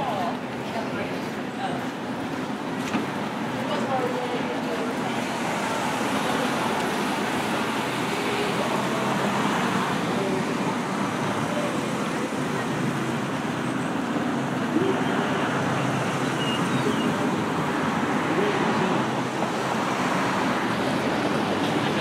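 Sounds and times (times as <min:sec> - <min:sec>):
faint voices: 0:00.0 - 0:22.0
traffic noise: 0:00.0 - 0:22.0.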